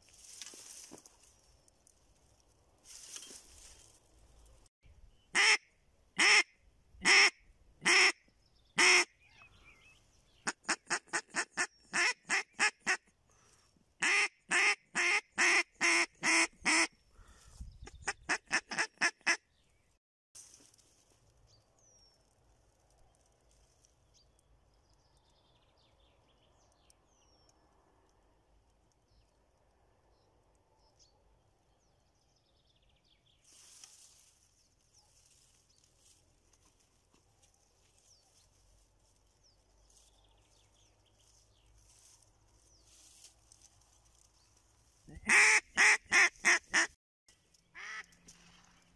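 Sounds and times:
duck call quacking: 5.4 - 5.6, 6.2 - 8.2, 14.0 - 16.9, 18.0 - 19.4, 45.1 - 46.9, 47.8 - 48.0.

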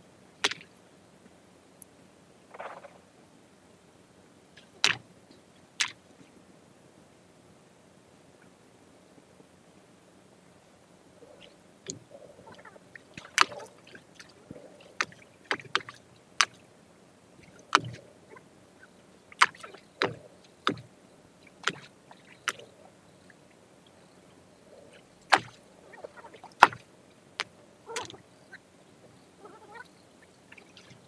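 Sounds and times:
sharp splashes and knocks in water: 0.4 - 0.7, 4.6 - 5.1, 5.8 - 6.0, 11.3 - 16.7, 17.4 - 18.1, 19.3 - 22.8, 24.9 - 28.2, 30.5 - 31.0.

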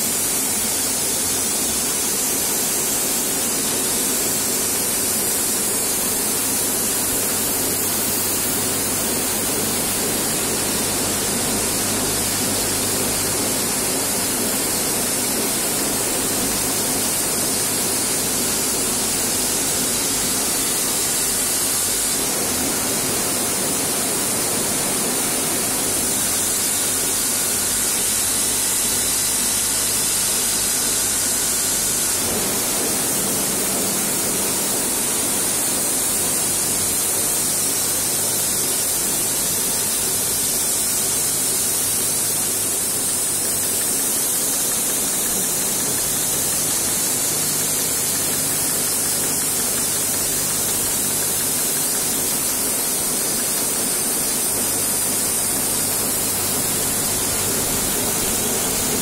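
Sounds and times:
screw forming machines running: 0.0 - 59.0
strong mechanical hiss: 0.0 - 59.0.

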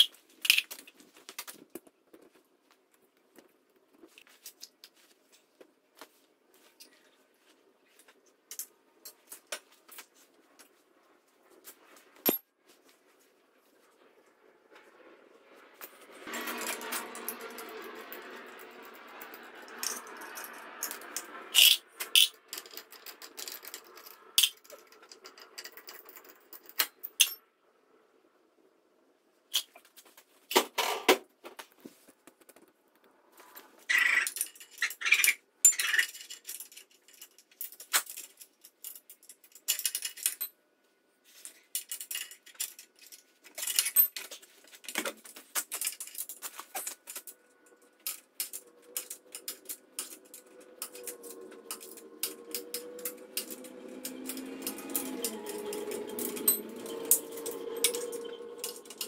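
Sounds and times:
hand tools clinking on metal: 41.8 - 59.0.

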